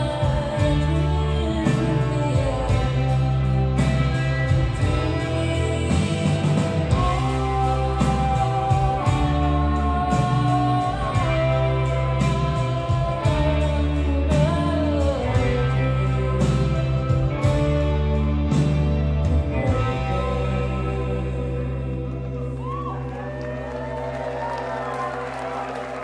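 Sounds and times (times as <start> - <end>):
steady drum beat: 0.0 - 20.2
rock band playing live: 0.0 - 26.0
woman singing lead: 0.0 - 26.0.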